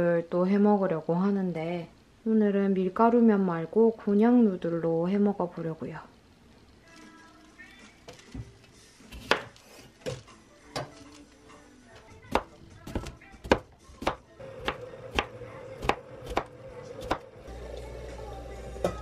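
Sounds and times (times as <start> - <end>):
knife chopping on cutting board: 9.1 - 9.6, 12.3 - 17.2.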